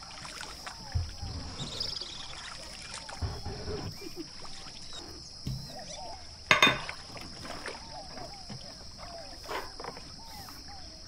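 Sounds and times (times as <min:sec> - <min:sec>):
faint bird chirps: 0:00.2 - 0:11.0.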